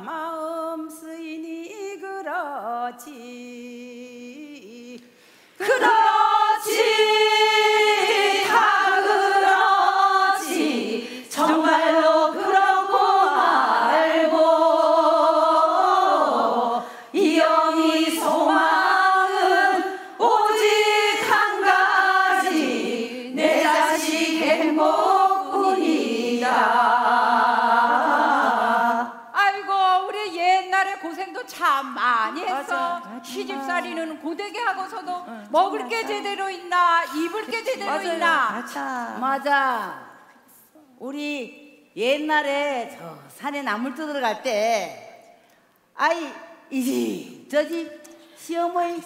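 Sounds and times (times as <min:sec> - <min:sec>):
group of women singing: 0:00.0 - 0:31.4, 0:32.3 - 0:38.4.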